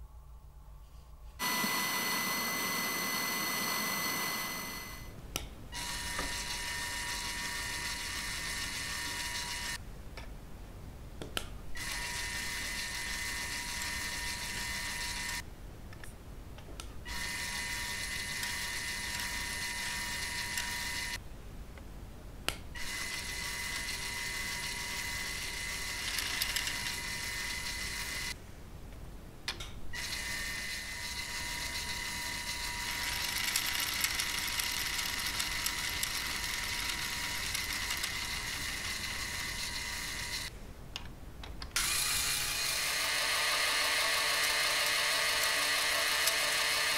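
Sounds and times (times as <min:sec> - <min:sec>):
motor driven gears whining and rattling: 0:05.8 - 0:09.8, 0:22.8 - 0:28.4, 0:30.0 - 0:40.5, 0:41.8 - 0:46.9.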